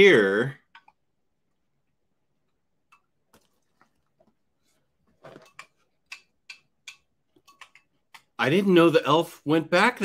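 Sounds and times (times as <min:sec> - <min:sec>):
person chewing cereal: 0:02.4 - 0:08.4.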